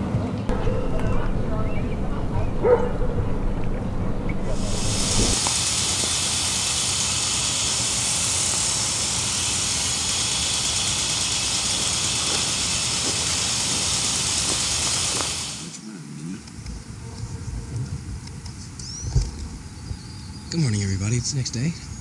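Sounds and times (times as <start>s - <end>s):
steady hiss: 0.5s - 15.9s.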